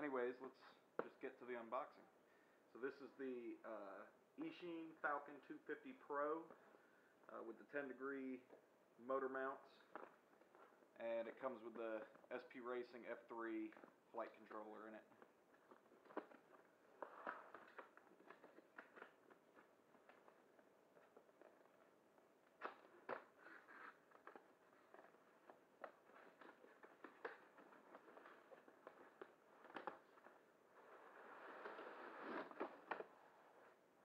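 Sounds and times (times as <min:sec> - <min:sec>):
cardboard rustling: 0:13.7 - 0:34.0.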